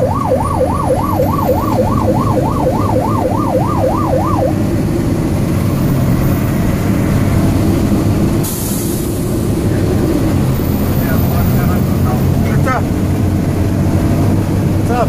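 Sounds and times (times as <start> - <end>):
fire engine siren yelping: 0.0 - 6.8
truck engine and road rumble: 0.0 - 15.0.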